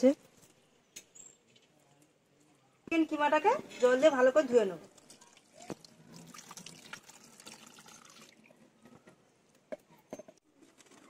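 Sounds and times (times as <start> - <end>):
water sloshing and dripping: 4.9 - 9.0.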